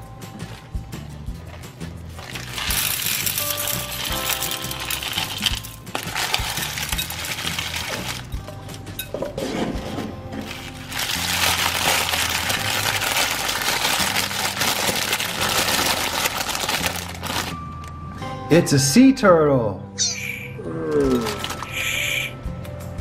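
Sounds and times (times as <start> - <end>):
background music: 0.0 - 23.0
plastic wrapper crinkling: 1.5 - 8.4, 10.4 - 17.6, 21.2 - 21.8
pebbles clattering into glass bowl: 2.2 - 8.4, 10.4 - 17.5.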